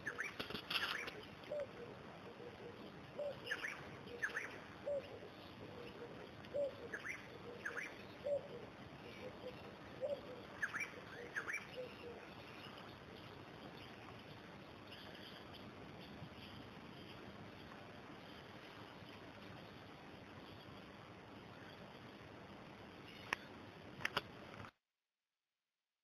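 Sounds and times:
birds chirping: 0:00.0 - 0:23.6.

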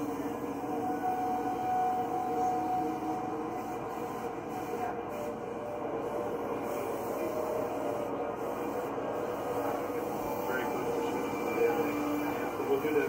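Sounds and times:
steady drone with held tones: 0:00.0 - 0:13.0.

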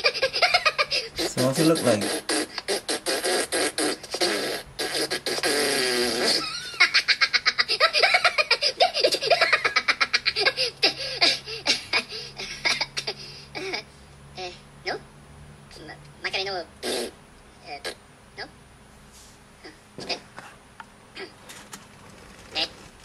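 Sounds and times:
cartoon voices giggling: 0:00.0 - 0:02.9, 0:06.2 - 0:11.0.

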